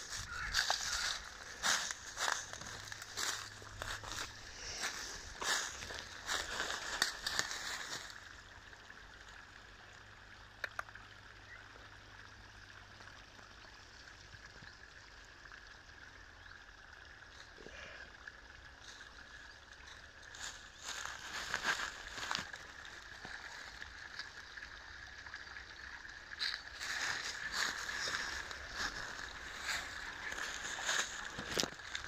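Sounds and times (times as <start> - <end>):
footsteps crunching dry leaves: 0.0 - 8.3, 20.3 - 23.8, 26.5 - 32.0.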